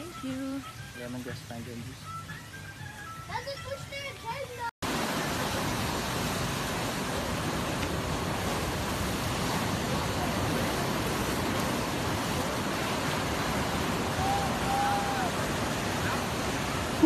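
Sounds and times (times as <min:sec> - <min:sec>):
ocean surf breaking: 0:04.8 - 0:17.0.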